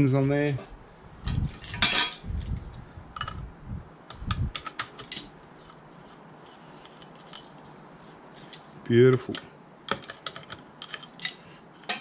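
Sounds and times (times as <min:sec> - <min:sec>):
small metal parts clattering: 0:01.5 - 0:02.5, 0:08.4 - 0:12.0.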